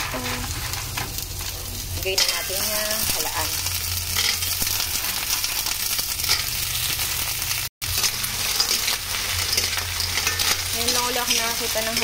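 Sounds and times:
clams sizzling in a wok: 0.0s - 12.0s
metal spatula stirring: 7.8s - 12.0s.

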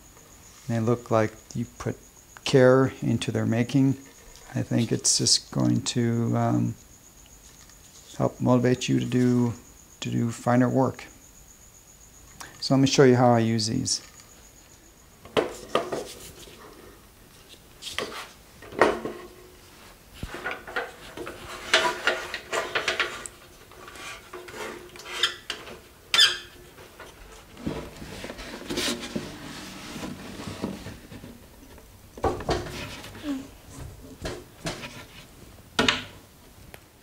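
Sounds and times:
handling noise: 15.2s - 36.7s
wood knocking and clattering: 15.3s - 16.2s, 18.0s - 19.4s, 30.0s - 35.2s, 35.8s - 36.2s.

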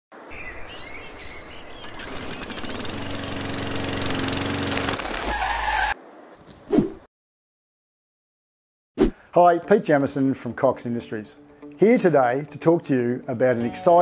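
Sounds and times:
birds chirping: 0.2s - 3.4s
engine running: 1.8s - 5.3s.

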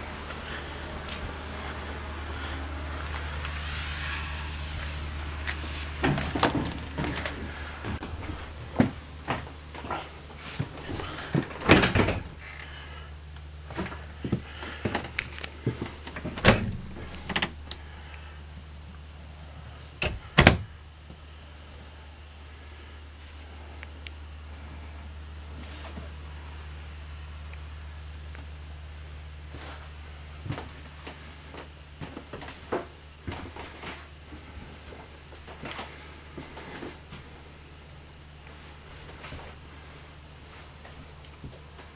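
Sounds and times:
footsteps on trailer floor: 0.0s - 3.6s, 4.8s - 12.4s, 13.6s - 17.6s, 29.5s - 37.4s
low steady hum: 0.0s - 41.9s.

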